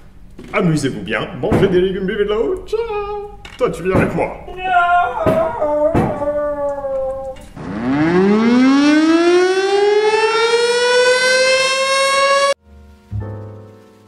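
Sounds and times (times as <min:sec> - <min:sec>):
siren wailing: 0:05.0 - 0:12.6
low background music: 0:12.6 - 0:14.0.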